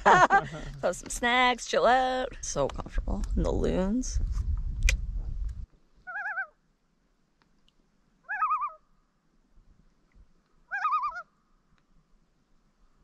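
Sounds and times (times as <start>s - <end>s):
low rumble: 2.2s - 5.7s
loon tremolo calls: 6.1s - 6.5s, 8.2s - 8.8s, 10.7s - 11.3s.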